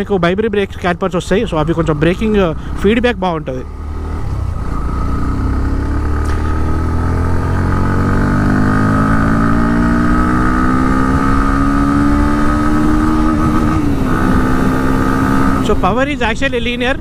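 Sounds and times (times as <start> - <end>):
motorcycle engine accelerating: 1.0 - 17.0.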